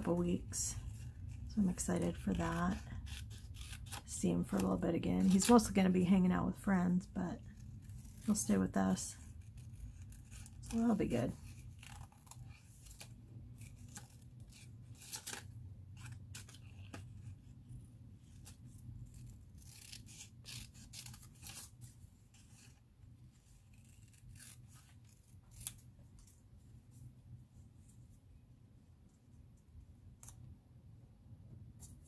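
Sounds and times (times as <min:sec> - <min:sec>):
scissors snipping paper: 0:00.1 - 0:05.8, 0:07.4 - 0:17.5, 0:18.2 - 0:26.4.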